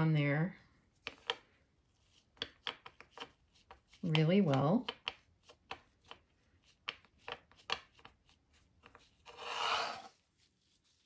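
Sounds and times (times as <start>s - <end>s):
foam rustling scrape: 9.2s - 11.0s.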